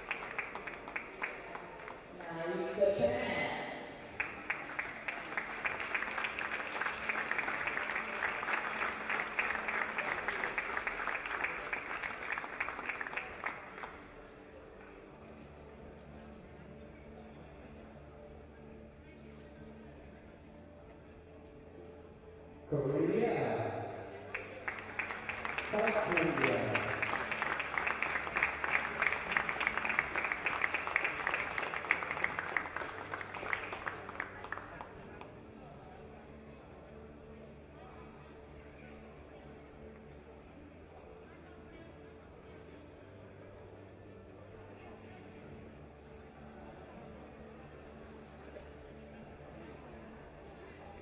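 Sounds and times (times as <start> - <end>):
crowd applause: 0.0 - 2.2, 4.1 - 14.2, 24.3 - 35.3.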